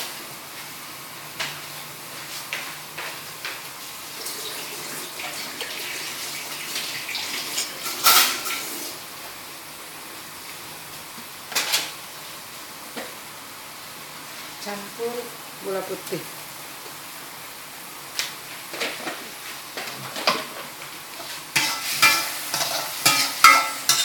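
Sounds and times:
spatula scraping pan: 21.1s - 24.0s.

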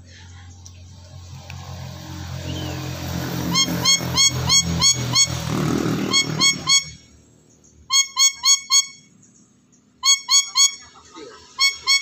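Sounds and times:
parrot calling high notes: 3.4s - 5.4s, 6.0s - 7.1s, 7.9s - 9.1s, 10.0s - 12.0s.

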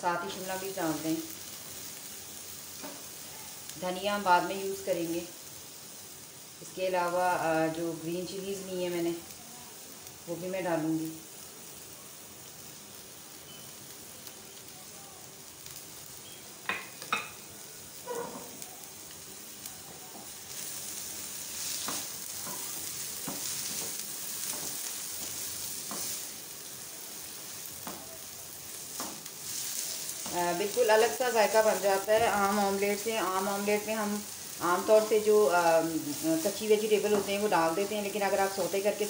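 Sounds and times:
vegetables sizzling in oil: 0.0s - 39.0s
spatula knocking and scraping pan: 21.7s - 26.2s.

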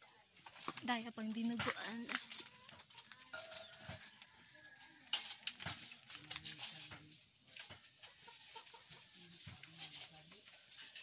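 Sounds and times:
low distant voices: 2.1s - 11.0s
faint chicken calls: 2.2s - 5.7s, 7.6s - 9.8s.

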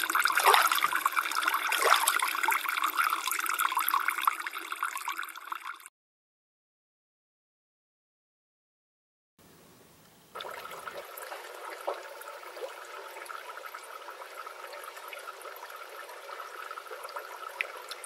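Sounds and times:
water rushing: 0.0s - 3.6s.

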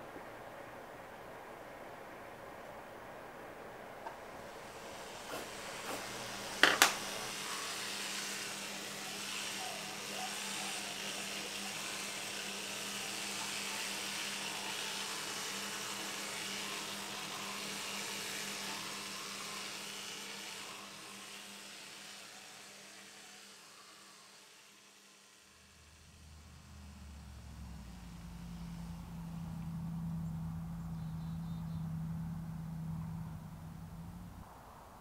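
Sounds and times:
electric toothbrush buzzing: 4.4s - 31.0s.

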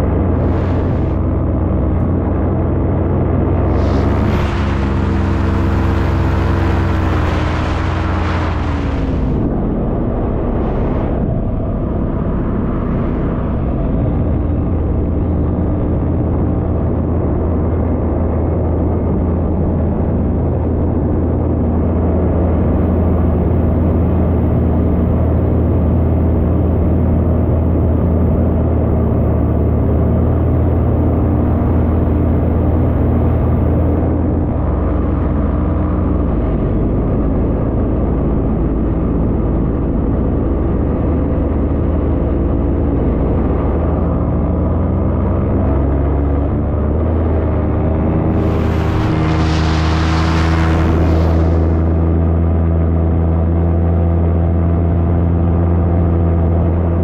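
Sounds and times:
wind rushing past microphone: 0.0s - 26.5s, 47.2s - 53.2s
paramotor engine running: 0.0s - 57.0s.

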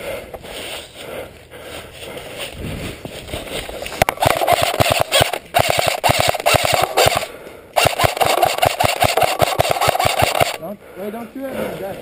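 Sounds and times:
airsoft rifle firing full-auto: 4.0s - 10.6s.

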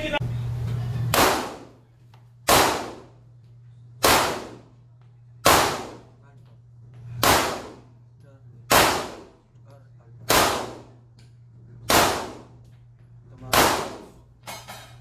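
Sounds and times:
pistol shots echoing: 1.1s - 1.8s, 2.4s - 3.2s, 4.0s - 4.8s, 5.4s - 6.2s, 7.2s - 8.0s, 8.7s - 9.4s, 10.3s - 11.0s, 11.8s - 12.6s, 13.5s - 14.2s.

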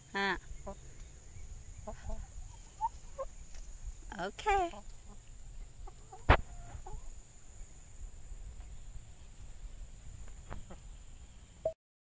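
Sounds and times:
hens clucking: 0.2s - 3.8s, 4.4s - 7.4s, 8.6s - 11.0s.

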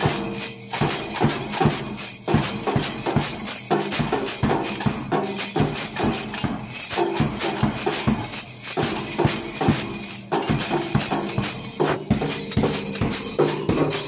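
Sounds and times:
metal maracas shaking: 0.0s - 14.0s
snare drum strokes: 0.0s - 14.0s.

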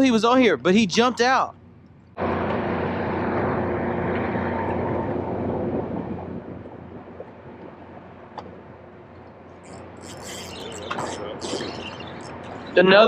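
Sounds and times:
boat motor running: 9.6s - 13.0s.

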